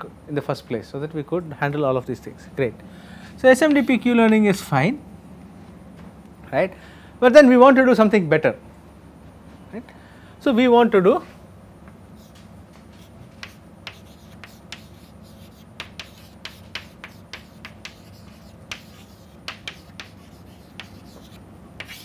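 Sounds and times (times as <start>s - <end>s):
chalk tapping and scratching: 12.2s - 22.0s.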